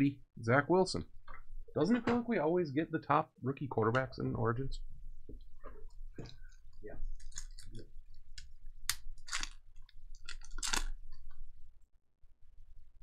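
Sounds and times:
card wrappers crinkling: 9.0s - 11.4s.

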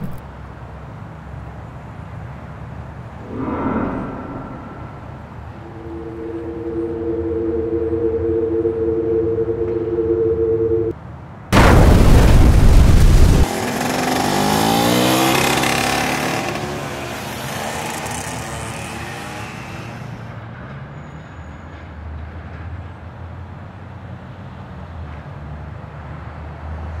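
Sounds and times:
engine rising in pitch: 3.2s - 10.9s
low steady rumble: 3.2s - 10.9s.

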